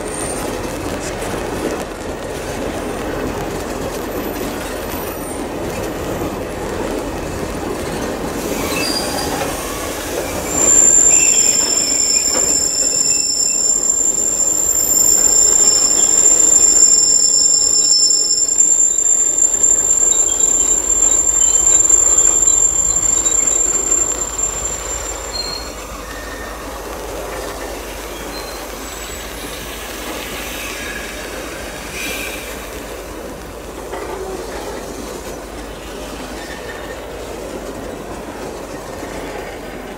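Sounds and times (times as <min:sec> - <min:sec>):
train wheels squealing on rail: 0:00.0 - 0:01.3, 0:02.4 - 0:33.3, 0:33.9 - 0:39.9
train wagons rumbling: 0:00.0 - 0:39.9.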